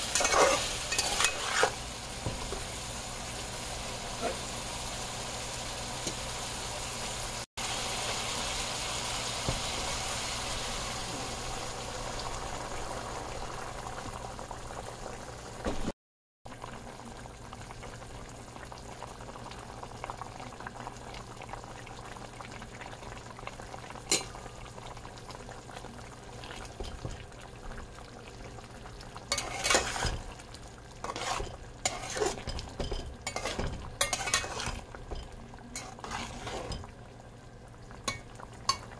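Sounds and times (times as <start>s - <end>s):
metal spatula scraping a pot: 0.0s - 1.8s, 29.3s - 30.3s, 31.0s - 36.9s
curry simmering: 0.0s - 15.9s, 16.5s - 38.9s
curry sizzling in a pot: 0.0s - 38.9s.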